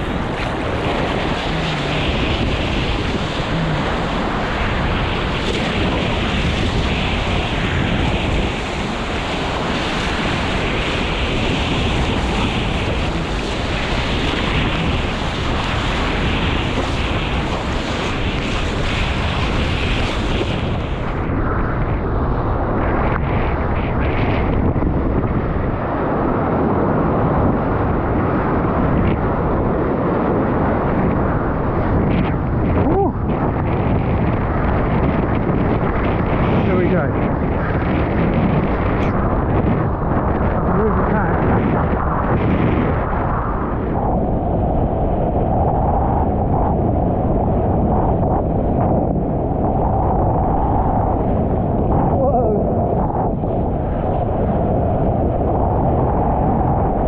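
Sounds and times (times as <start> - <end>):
water rushing and splashing: 0.0 - 21.3
broken surf rushing: 0.0 - 57.0
wind buffeting microphone: 0.0 - 57.0.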